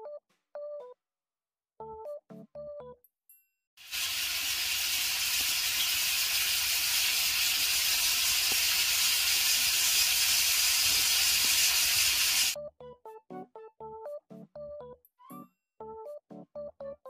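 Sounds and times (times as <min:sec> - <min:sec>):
loud steady hiss: 0:03.8 - 0:12.6.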